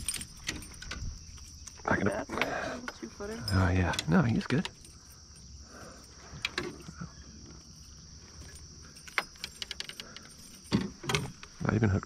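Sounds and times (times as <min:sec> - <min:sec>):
small metallic clicks: 0:00.0 - 0:11.5
insects chirring: 0:00.0 - 0:12.0.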